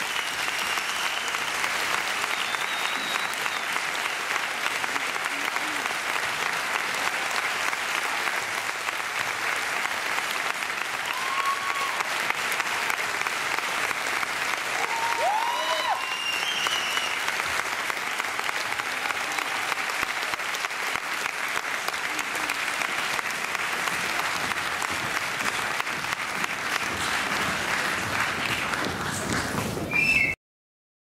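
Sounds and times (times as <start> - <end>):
audience applauding: 0.0 - 30.4
crowd shouts: 11.0 - 12.1, 14.8 - 16.3.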